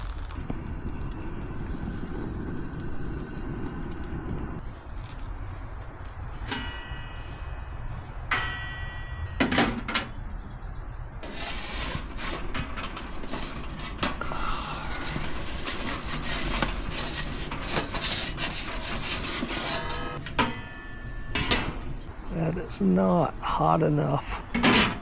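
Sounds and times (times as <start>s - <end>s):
high-pitched insect drone: 0.0s - 25.0s
metal peel clanking on oven: 15.0s - 22.0s.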